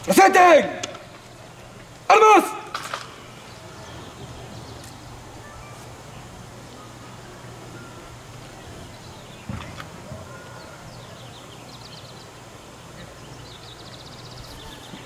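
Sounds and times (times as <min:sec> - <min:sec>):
small birds chirping: 0:03.0 - 0:15.0.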